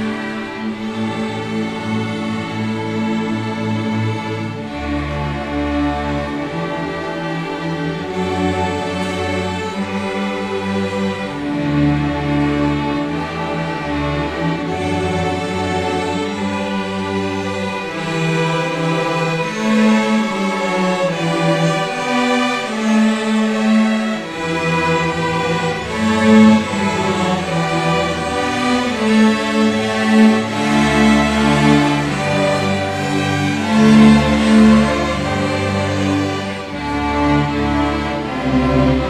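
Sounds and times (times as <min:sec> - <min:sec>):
string orchestra playing: 0:00.0 - 0:39.0.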